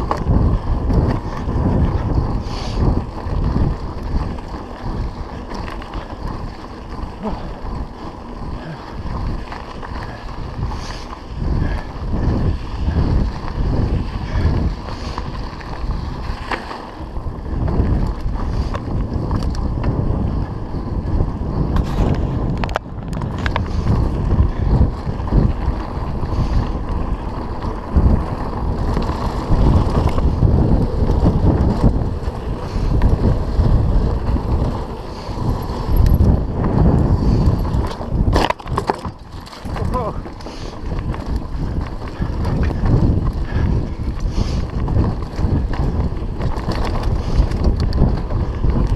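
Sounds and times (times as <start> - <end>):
bike knocks and rattles: 0.0 - 48.9
wind buffeting microphone: 0.0 - 48.9.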